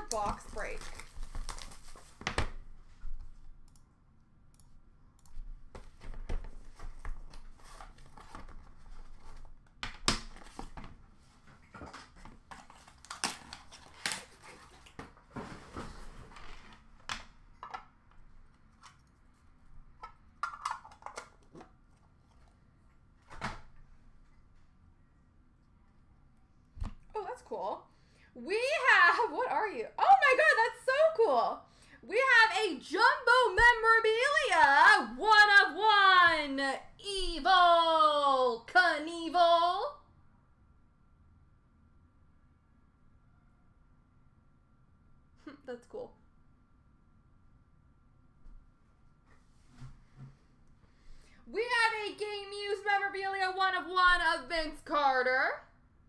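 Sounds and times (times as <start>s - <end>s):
packaging rustling: 0.1s - 2.4s, 11.9s - 15.0s.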